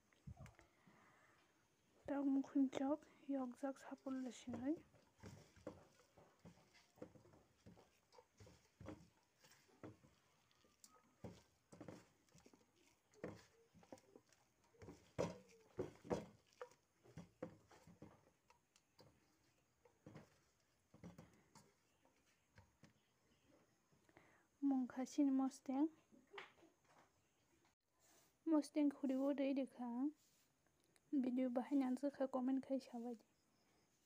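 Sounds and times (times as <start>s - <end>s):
hand mixing food in metal bowl: 2.1s - 23.2s.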